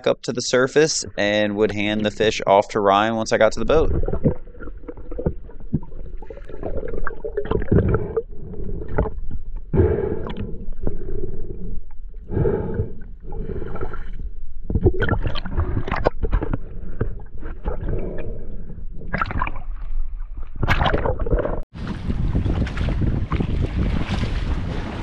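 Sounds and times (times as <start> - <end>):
muffled water gurgling and sloshing: 0.0 - 25.0
wind on microphone: 21.7 - 25.0.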